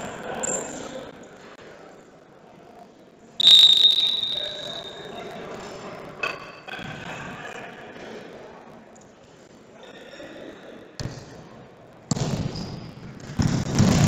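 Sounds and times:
referee's whistle blast: 3.4 - 5.2.

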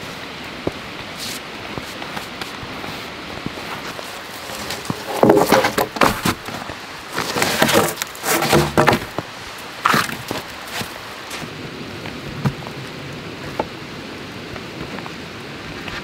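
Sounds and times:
steady background hiss: 0.0 - 16.0
branches rustling: 0.7 - 13.8
wood knocking and scraping: 3.7 - 10.9.

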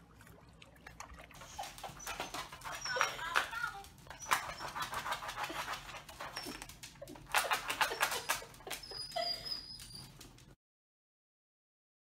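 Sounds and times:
dog whimpering: 1.4 - 3.4, 4.1 - 10.4
dog claws scratching at doormat: 1.4 - 9.0.

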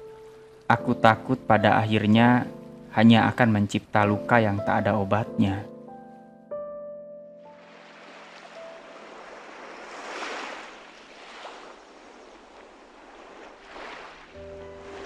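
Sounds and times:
ocean waves surging: 7.5 - 15.0.

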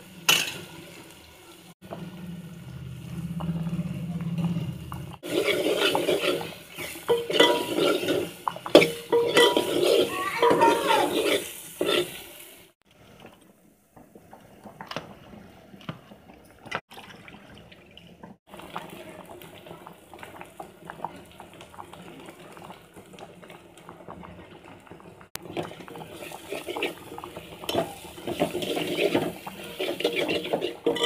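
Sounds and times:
paste sizzling: 2.2 - 12.8, 25.4 - 31.0
ladle scraping metal pot: 4.5 - 12.2, 25.6 - 31.0.

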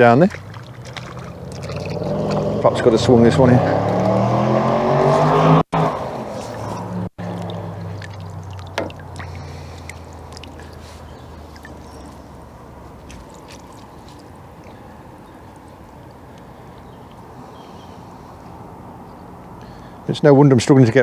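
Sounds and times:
water sloshing and trickling: 0.0 - 4.2, 5.9 - 19.5
low engine drone: 0.0 - 16.3.

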